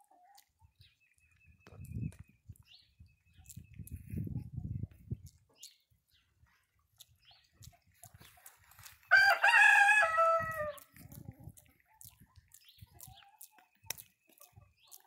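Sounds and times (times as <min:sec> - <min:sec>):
rooster crowing: 0:09.1 - 0:10.7.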